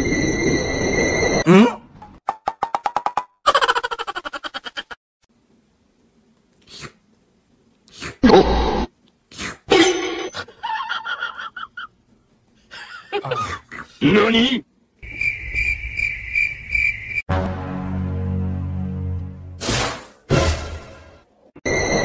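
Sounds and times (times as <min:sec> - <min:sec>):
music with low drone: 0:17.3 - 0:19.6.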